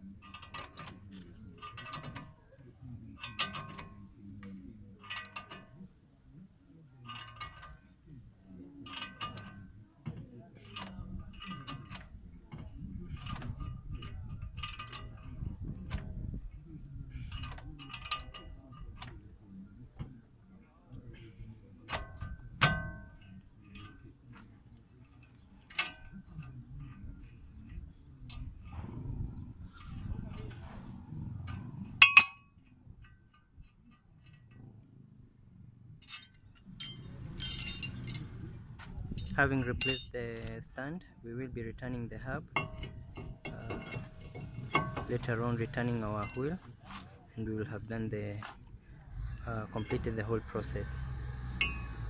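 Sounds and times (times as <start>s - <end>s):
wrench metal clinking: 32.0s - 32.6s, 36.0s - 38.4s, 39.2s - 40.2s, 42.6s - 45.3s, 46.0s - 46.6s, 51.6s - 52.0s
light ticks of tools handled: 36.0s - 38.3s.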